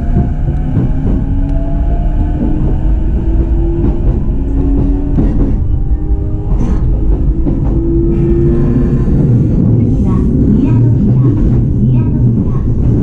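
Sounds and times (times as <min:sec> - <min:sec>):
train rumble with motor whine: 0:00.0 - 0:13.0.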